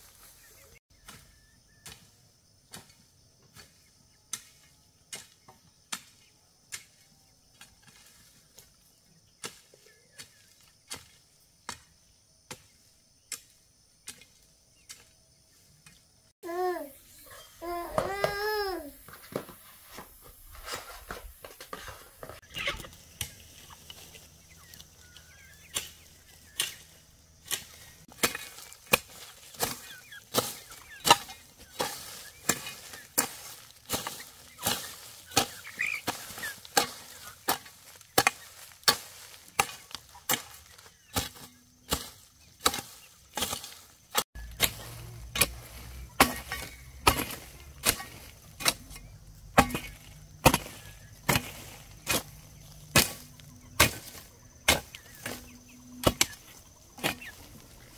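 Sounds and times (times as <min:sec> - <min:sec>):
hand tool chopping: 0:25.5 - 0:56.4, 0:57.0 - 0:57.7.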